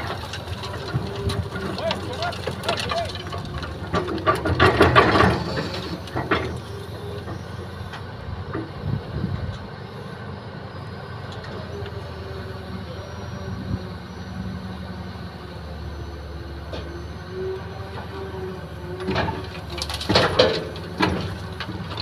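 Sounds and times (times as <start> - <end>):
bucket clattering through soil and stones: 0.0 - 6.5
excavator diesel engine running: 0.0 - 22.0.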